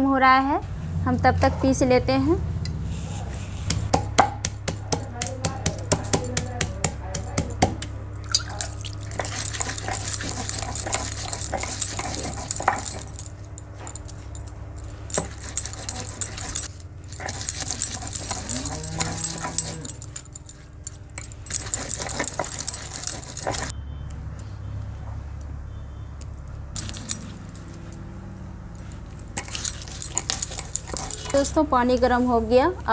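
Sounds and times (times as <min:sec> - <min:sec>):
gritty stone scraping: 0:08.5 - 0:23.7, 0:29.4 - 0:31.6.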